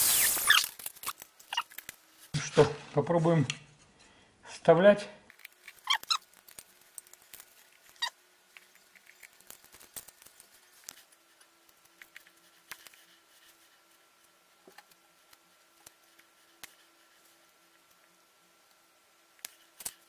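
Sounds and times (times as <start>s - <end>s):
faint clicks and scratches: 5.3s - 20.0s.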